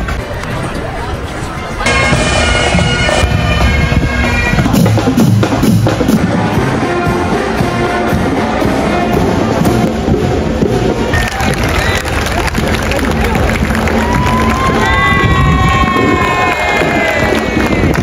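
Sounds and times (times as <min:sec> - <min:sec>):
brass playing: 0:01.8 - 0:11.3
drums beating: 0:01.9 - 0:18.0.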